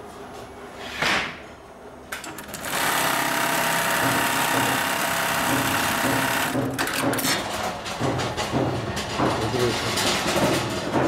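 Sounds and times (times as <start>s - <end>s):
sewing machine running: 2.2s - 7.4s.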